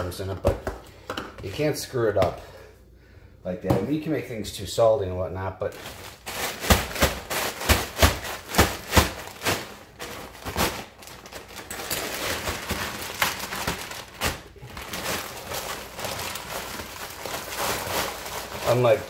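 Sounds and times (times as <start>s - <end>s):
plastic bag crinkling: 5.6s - 19.0s.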